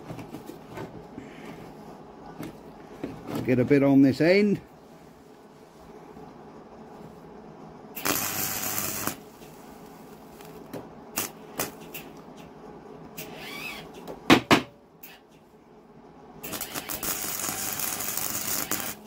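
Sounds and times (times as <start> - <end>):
welder arcing zaps: 8.0 - 9.5, 10.3 - 12.1, 16.4 - 19.0.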